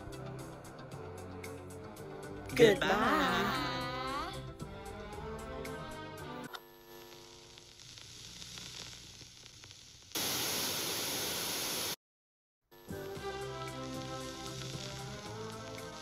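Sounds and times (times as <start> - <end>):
music: 0.0 - 6.6, 12.7 - 16.0
low hiss: 2.1 - 12.0, 12.9 - 16.0
burst of static noise: 6.5 - 12.0, 12.8 - 16.0.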